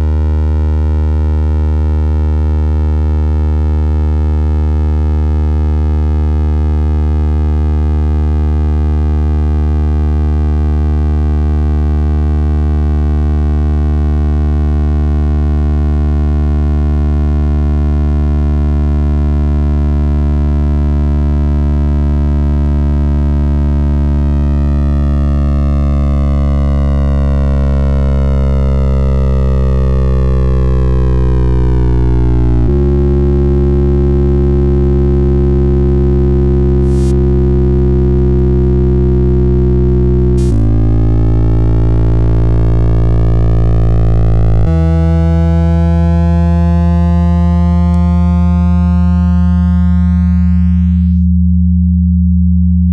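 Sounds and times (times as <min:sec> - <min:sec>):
synthesized drone of sine tones: 0:36.8 - 0:52.6.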